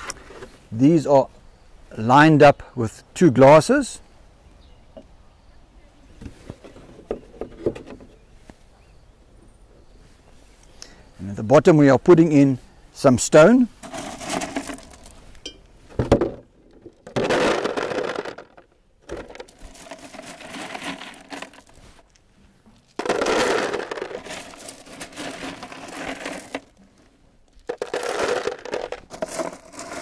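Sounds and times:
stones clattering in plastic container: 13.8 - 15.2, 16.0 - 22.2, 22.8 - 30.0.

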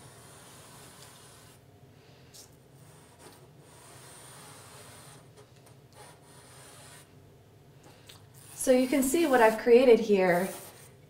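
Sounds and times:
charcoal rubbing across paper: 0.0 - 1.6, 2.8 - 5.3, 6.0 - 7.1, 8.4 - 11.0.

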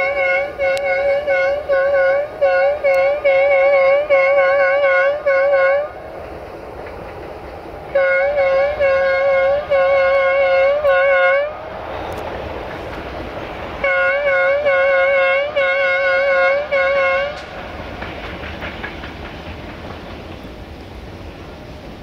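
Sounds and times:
locomotive horn blasts: 0.0 - 6.1, 7.9 - 11.6, 13.8 - 17.5
freight train running noise: 0.0 - 22.0.

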